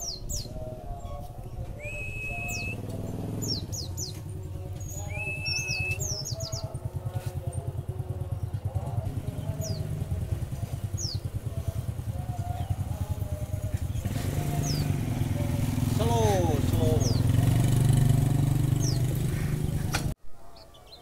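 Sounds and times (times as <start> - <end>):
bird chirping high: 0.0 - 6.8, 13.7 - 21.0
motorcycle engine idling: 1.5 - 20.2.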